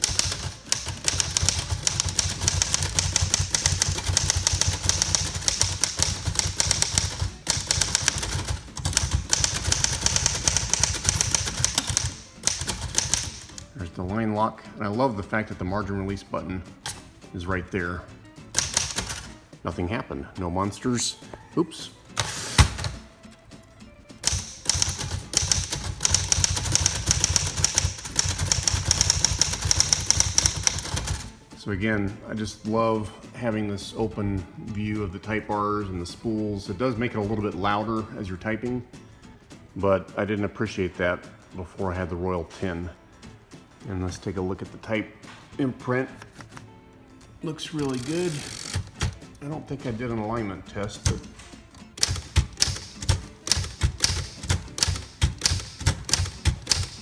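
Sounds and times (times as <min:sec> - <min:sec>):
manual typewriter typing: 0:00.0 - 0:13.7, 0:18.6 - 0:19.3, 0:24.2 - 0:31.3, 0:47.7 - 0:49.2, 0:51.0 - 0:57.0.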